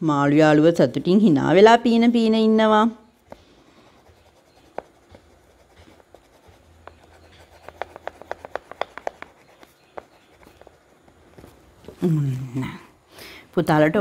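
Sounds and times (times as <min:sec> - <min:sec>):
oil pastel scribbling on paper: 0:03.8 - 0:11.6.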